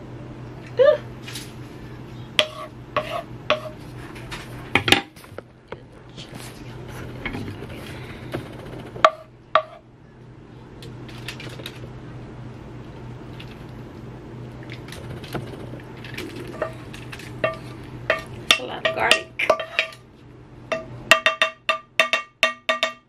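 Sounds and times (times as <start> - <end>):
metal utensil clinking on pan: 17.4 - 20.0.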